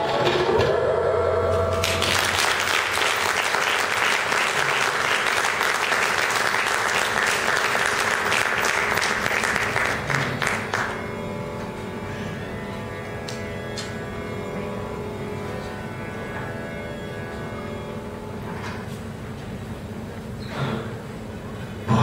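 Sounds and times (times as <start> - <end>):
faint steady drone: 0.6 - 20.4
audience applauding: 1.7 - 11.2.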